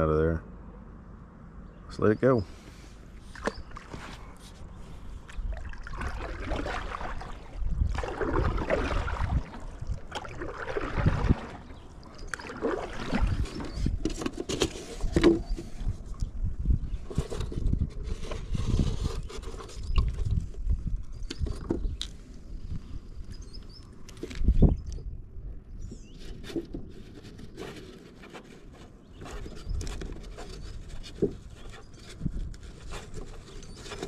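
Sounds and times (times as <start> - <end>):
gear scraping and knocking in kayak: 3.2 - 22.1, 25.8 - 34.0.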